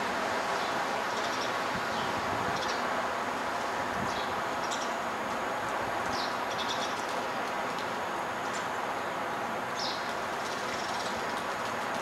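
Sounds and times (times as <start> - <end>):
city background noise: 0.0 - 12.0.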